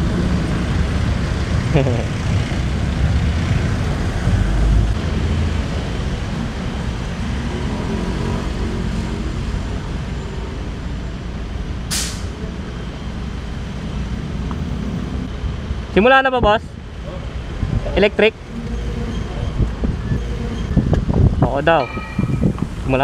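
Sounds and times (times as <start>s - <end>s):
wind rushing over microphone: 0.0s - 9.1s, 14.0s - 23.0s
road and traffic noise: 0.0s - 23.0s
short sharp hiss: 11.9s - 12.3s.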